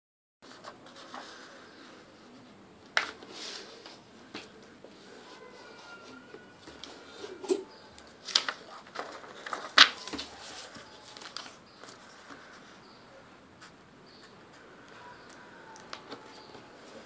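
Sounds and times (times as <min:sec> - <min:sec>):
paper rustling and crinkling: 0:00.4 - 0:12.8.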